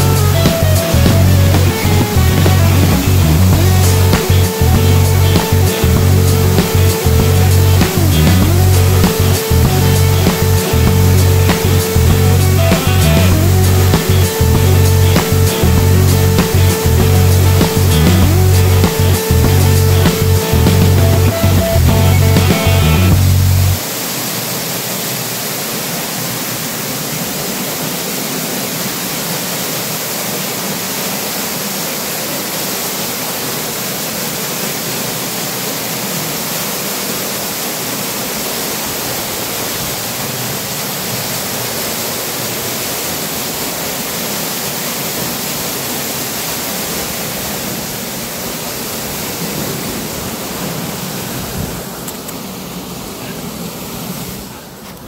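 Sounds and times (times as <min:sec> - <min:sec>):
waterfall splashing onto rock: 0:23.4 - 0:52.6.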